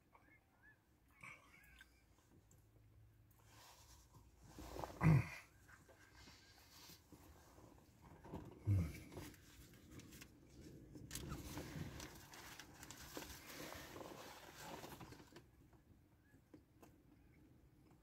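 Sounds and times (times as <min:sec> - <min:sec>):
paper wrapper crinkling: 0:11.0 - 0:15.4.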